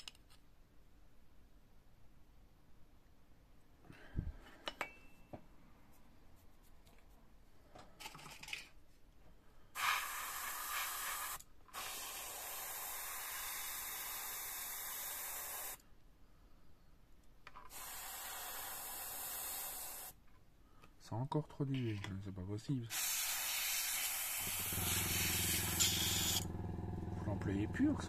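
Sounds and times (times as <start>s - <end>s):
airbrush spraying hiss: 9.8s - 15.8s, 17.7s - 20.2s, 22.9s - 26.4s.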